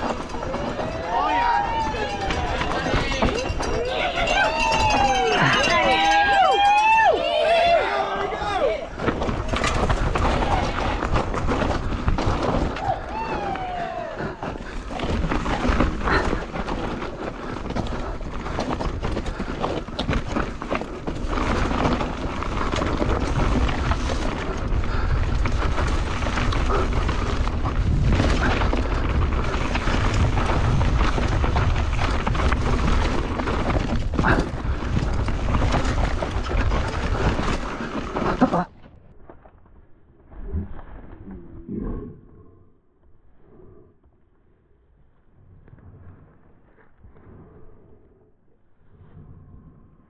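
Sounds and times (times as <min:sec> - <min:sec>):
mountain bike rattling over trail: 0:00.0 - 0:39.9
wind buffeting microphone: 0:08.3 - 0:38.2.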